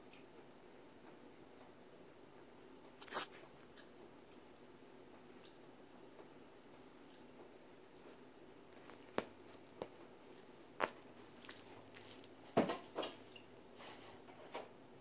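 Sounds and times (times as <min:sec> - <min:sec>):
cat chewing toy crunches: 0:03.0 - 0:03.4, 0:08.7 - 0:12.6.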